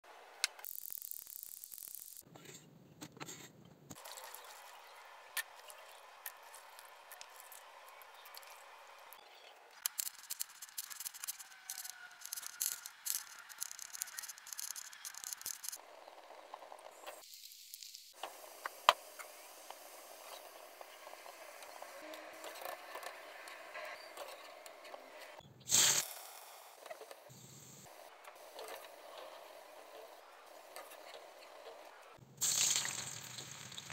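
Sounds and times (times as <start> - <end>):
oil sizzling in frying pan: 32.4 - 33.9.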